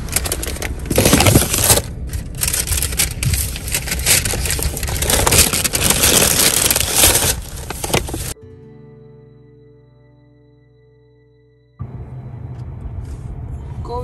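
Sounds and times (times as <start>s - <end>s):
paper bag rustling and crinkling: 0.0s - 8.4s.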